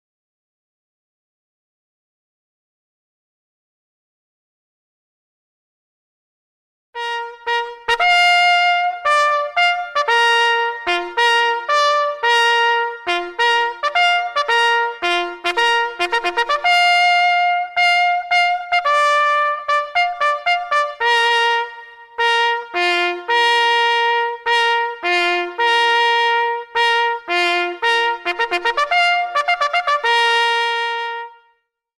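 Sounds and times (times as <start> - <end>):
bugle call on brass horn: 7.0 - 31.4.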